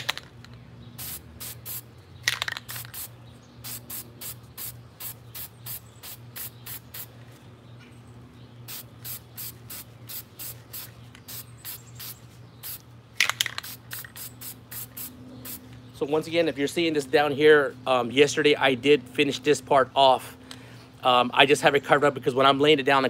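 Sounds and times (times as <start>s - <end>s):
spray can hissing bursts: 1.0s - 7.1s, 8.7s - 15.6s.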